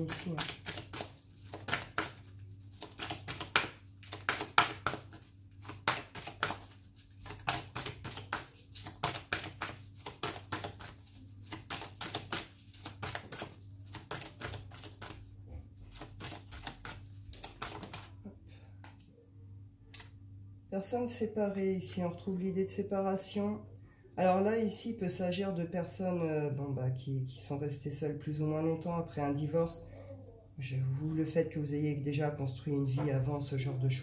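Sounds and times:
cards being shuffled: 0:00.0 - 0:18.2
faint steady hum: 0:00.0 - 0:34.0.

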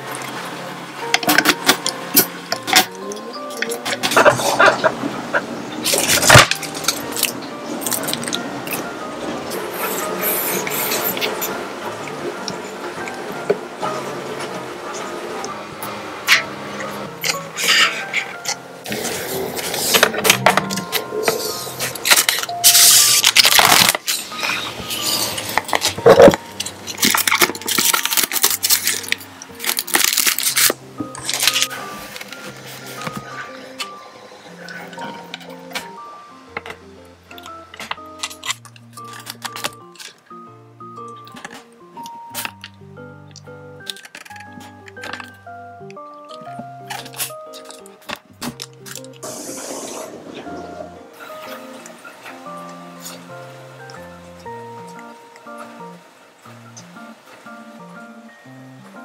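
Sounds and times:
soft background music: 0:00.0 - 0:59.0
plastic wrapping crinkling: 0:05.8 - 0:08.9, 0:17.2 - 0:34.0, 0:36.6 - 0:40.2, 0:43.8 - 0:45.4, 0:46.2 - 0:49.3
crisp plastic clicks: 0:36.6 - 0:40.2, 0:41.1 - 0:49.2.

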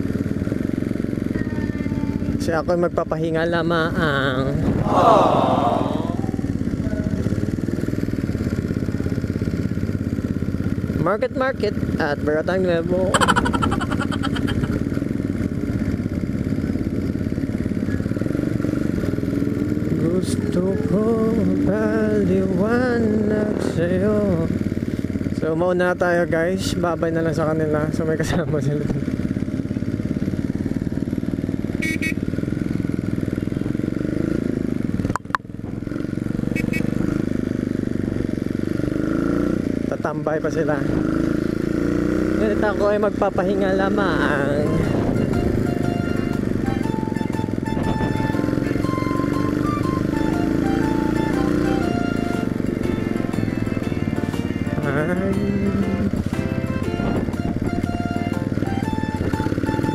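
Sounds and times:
motorcycle engine at low revs: 0:00.0 - 0:59.9
short high beeps: 0:35.1 - 0:35.4.

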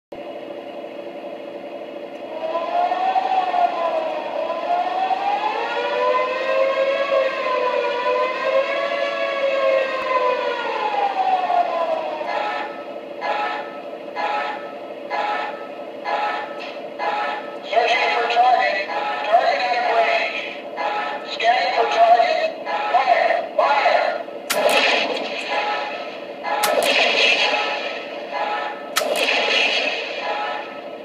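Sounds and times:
steady hum: 0:00.2 - 0:09.1, 0:09.7 - 0:31.0
short siren blasts: 0:02.2 - 0:17.5
air-raid siren wailing: 0:02.2 - 0:24.4.

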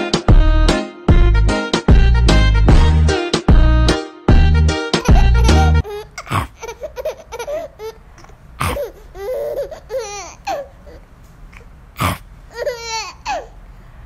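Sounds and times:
baby laughing and babbling: 0:04.9 - 0:13.6.

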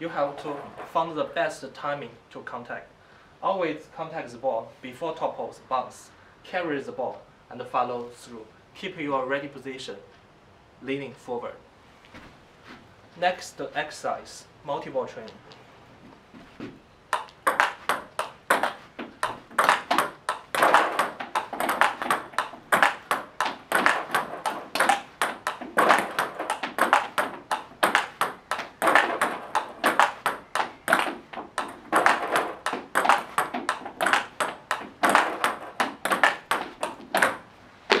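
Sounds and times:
table tennis ball clicks: 0:17.1 - 0:38.0.

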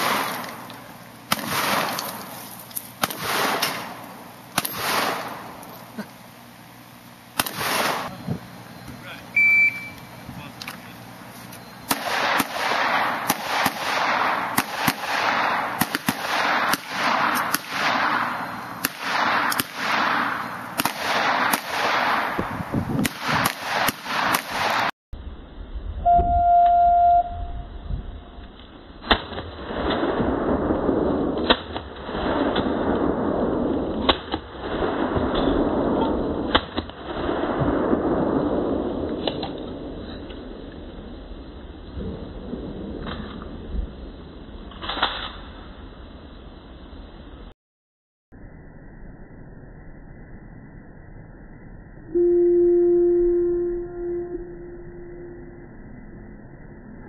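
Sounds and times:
electronic beep: 0:09.3 - 0:10.1, 0:26.0 - 0:27.7, 0:52.0 - 0:56.0
pistol shots with echo: 0:11.9 - 0:24.9.

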